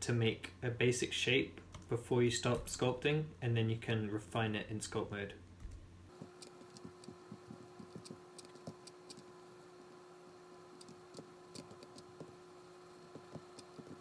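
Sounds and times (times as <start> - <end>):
steady low hum: 0.0 - 14.0
keyboard and mouse clicks: 6.2 - 9.3, 10.8 - 12.4, 13.0 - 14.0.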